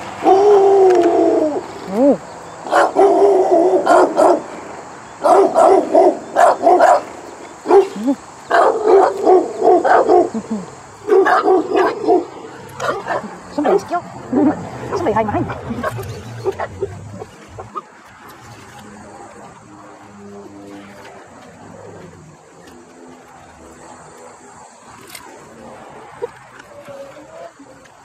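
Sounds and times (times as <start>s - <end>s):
puppy barking: 2.7s - 4.5s, 5.2s - 10.4s, 11.0s - 16.9s.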